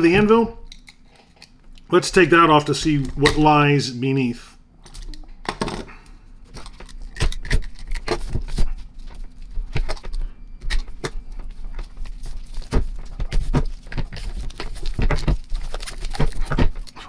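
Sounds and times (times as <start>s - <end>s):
tape crackling and ripping: 6.5s - 17.0s.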